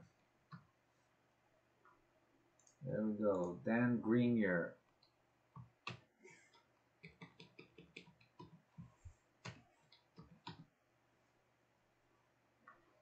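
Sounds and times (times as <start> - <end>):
computer keyboard typing: 7.0 - 8.6.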